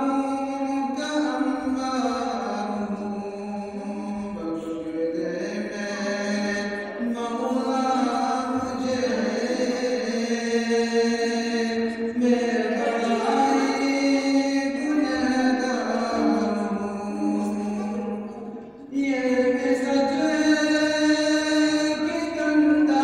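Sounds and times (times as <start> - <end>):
man chanting melodically: 0.0 - 23.0.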